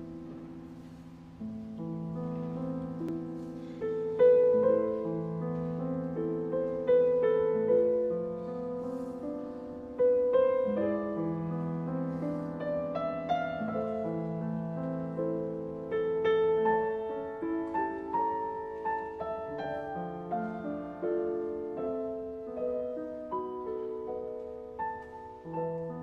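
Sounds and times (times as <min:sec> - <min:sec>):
slow piano music: 0:00.0 - 0:26.0.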